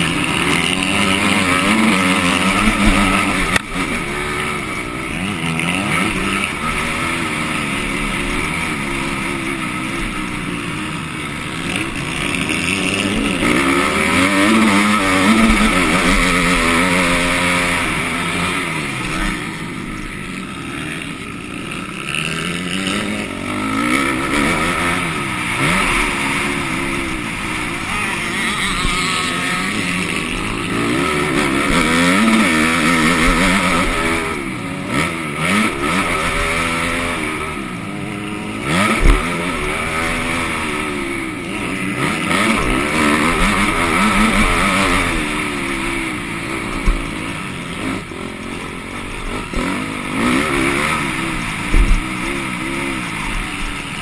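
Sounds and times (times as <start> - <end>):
motocross bike engine revving: 0.0 - 54.0
sharp thump: 51.7 - 52.0.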